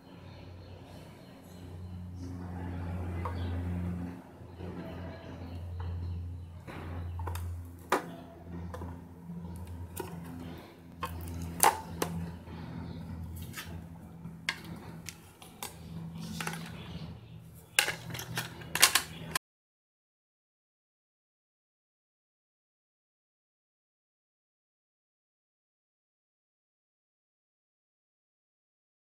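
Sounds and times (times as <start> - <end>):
low hum: 0.0 - 19.4.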